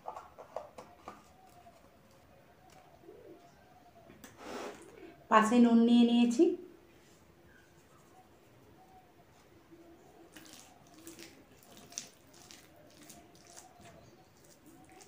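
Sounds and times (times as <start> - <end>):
fingers squishing wet rice: 10.3 - 15.0.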